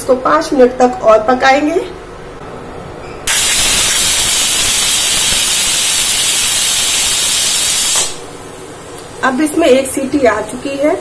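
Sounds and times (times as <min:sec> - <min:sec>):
pressure cooker steam hiss: 0:03.3 - 0:11.0.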